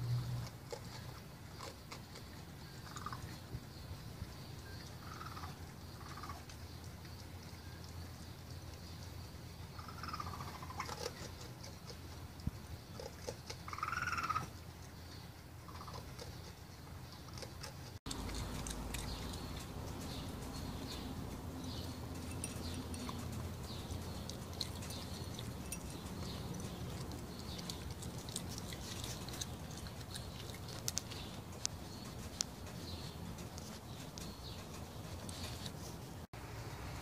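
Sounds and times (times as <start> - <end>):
raccoon crunching kibble: 0.1 - 36.3
raccoon high cries: 13.7 - 14.5.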